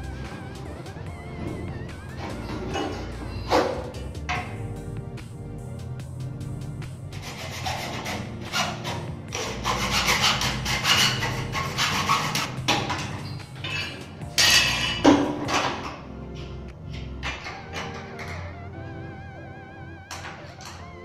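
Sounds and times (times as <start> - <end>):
scraping and rubbing noise: 0.0 - 4.5, 6.5 - 15.9
background music: 0.0 - 21.0.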